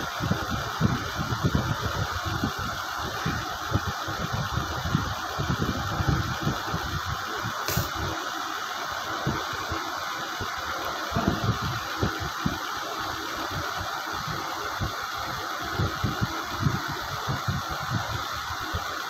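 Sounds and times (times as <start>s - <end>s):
mechanical hum and hiss: 0.0s - 19.0s
brief click: 7.7s - 7.9s.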